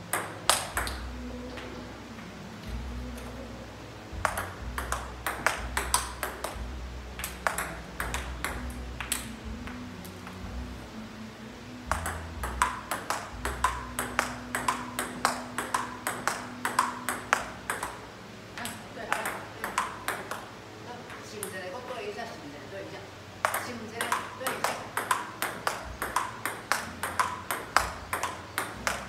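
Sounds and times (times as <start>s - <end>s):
table tennis ball clicks: 4.2s - 6.6s, 7.2s - 10.4s, 11.9s - 18.0s, 18.6s - 20.5s, 23.4s - 29.0s.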